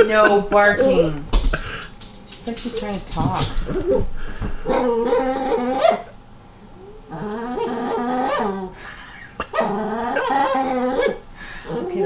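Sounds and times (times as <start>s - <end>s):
small dog whining: 4.7s - 6.1s.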